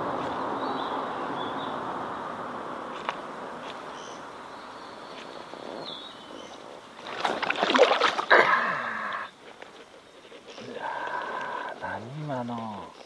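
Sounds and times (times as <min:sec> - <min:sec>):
water splashing: 0:07.0 - 0:09.2.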